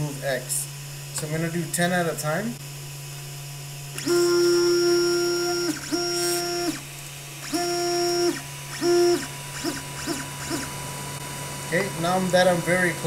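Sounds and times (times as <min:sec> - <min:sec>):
low hum: 0:00.0 - 0:13.0
stepper motor whining: 0:03.9 - 0:13.0.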